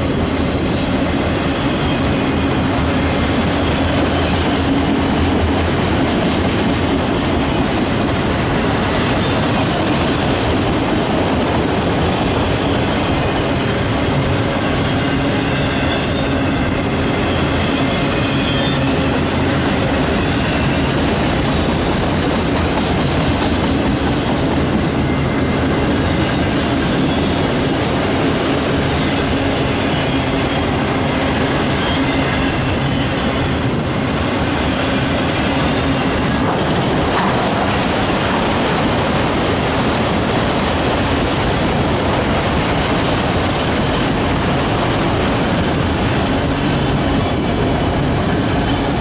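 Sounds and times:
train wheels rumbling on rails: 0:00.0 - 0:49.0
high wheel squeal: 0:14.5 - 0:21.0, 0:29.0 - 0:33.6.

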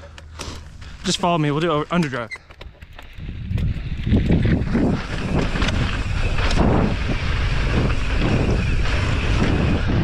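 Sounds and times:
bike riding rumble: 0:00.0 - 0:10.0
wind on microphone: 0:02.8 - 0:10.0.

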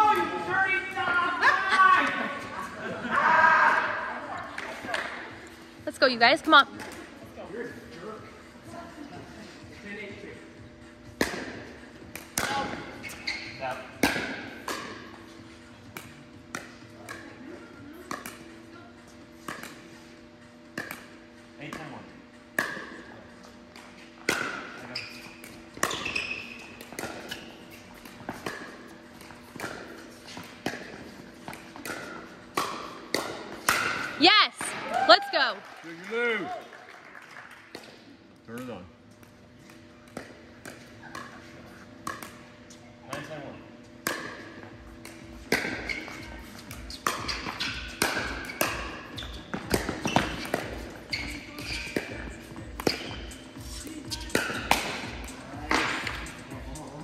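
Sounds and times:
paddles hitting plastic ball: 0:46.7 - 0:53.4, 0:54.3 - 0:56.6.

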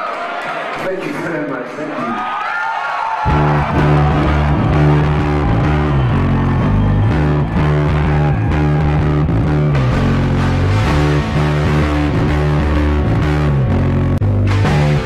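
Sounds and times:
rock band playing: 0:03.3 - 0:15.0.

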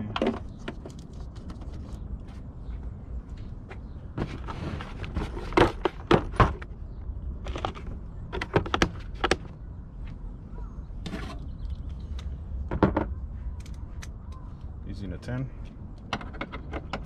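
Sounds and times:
tools clicking and knocking: 0:15.6 - 0:17.0.

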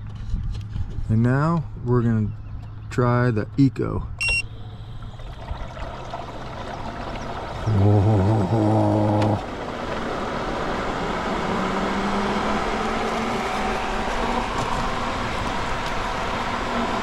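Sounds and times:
loud low hum: 0:01.6 - 0:17.0
pool pump running: 0:04.2 - 0:17.0.

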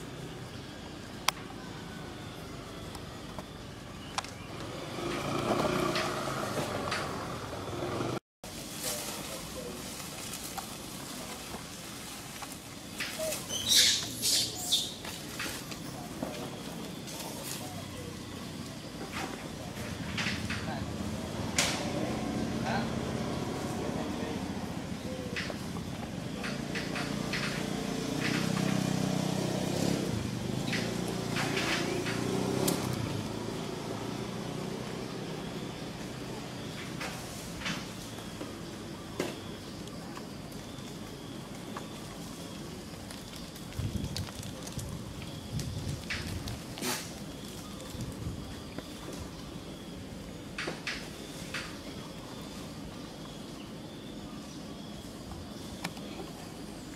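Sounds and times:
vehicle engine humming: 0:00.0 - 0:08.2, 0:15.0 - 0:51.4
outdoor background hiss: 0:00.0 - 0:56.9.

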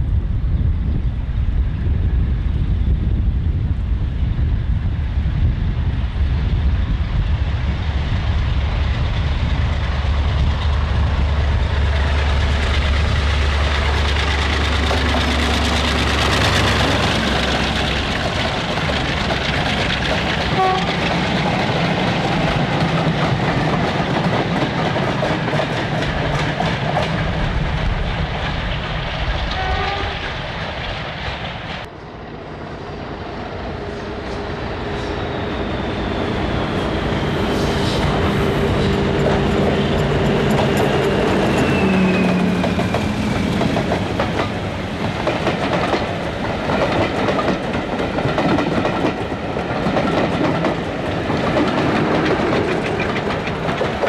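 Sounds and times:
diesel locomotive engine drone: 0:00.0 - 0:54.0
diesel train approaching: 0:00.0 - 0:54.0
train wheels clattering over rail joints: 0:09.0 - 0:31.9, 0:37.5 - 0:54.0.

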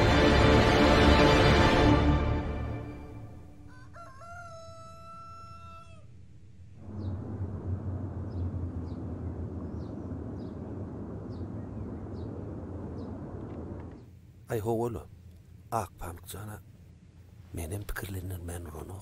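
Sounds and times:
steady outdoor background: 0:00.0 - 0:19.0
rooster crowing: 0:03.6 - 0:06.2
bird chirping: 0:06.4 - 0:14.3.

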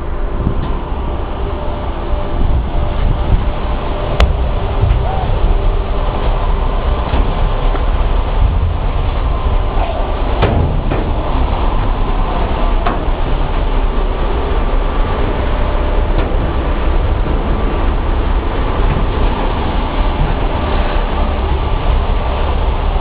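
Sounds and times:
paper-mill machinery rumble: 0:00.0 - 0:23.0.

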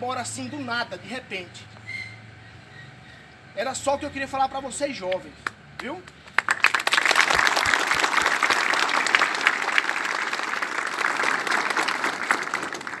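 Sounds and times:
people clapping and applauding: 0:05.8 - 0:13.0.

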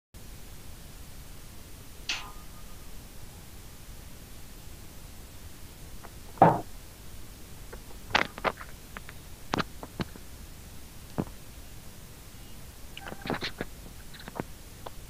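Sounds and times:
faint steady hiss: 0:00.2 - 0:15.0
dull thump: 0:06.4 - 0:06.7.

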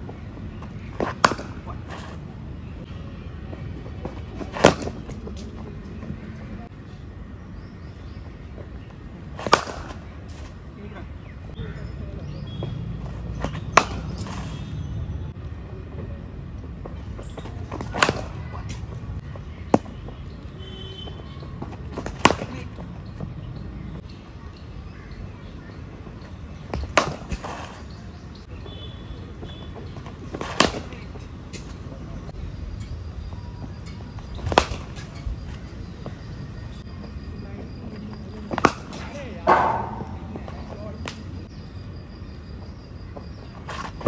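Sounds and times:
cricket ball striking bat: 0:04.5 - 0:05.1, 0:13.4 - 0:14.2, 0:21.9 - 0:22.6, 0:26.7 - 0:27.5, 0:34.4 - 0:35.0, 0:38.5 - 0:41.2.

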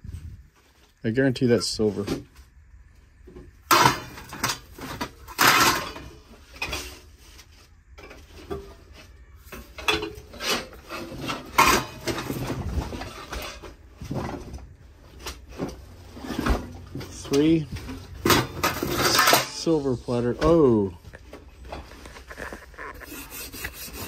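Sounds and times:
metal items knocking and clanking: 0:03.6 - 0:07.0, 0:08.0 - 0:20.6.

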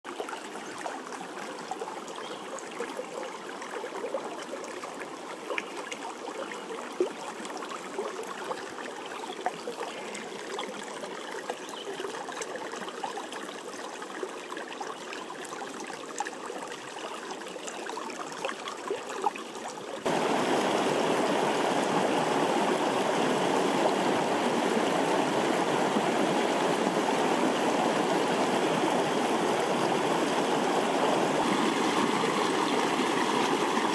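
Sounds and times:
water trickling over rocks: 0:00.1 - 0:33.9
water rushing over rocks: 0:20.0 - 0:33.9.

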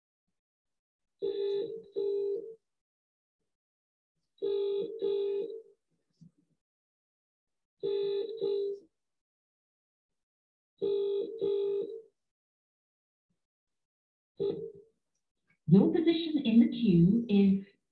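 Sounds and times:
telephone double ring tone: 0:04.4 - 0:05.7, 0:07.8 - 0:08.8, 0:10.8 - 0:12.1, 0:14.4 - 0:14.8.

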